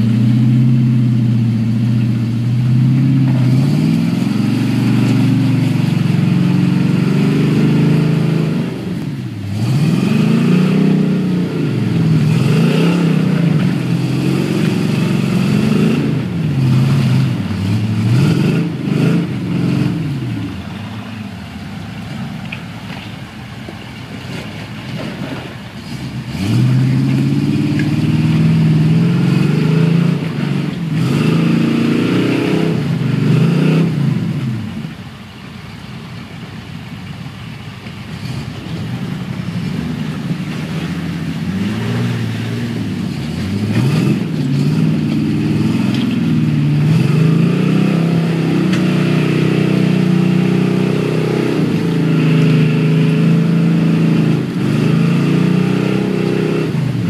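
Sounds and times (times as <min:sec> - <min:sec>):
buggy engine revving: 0:00.0 - 0:57.0.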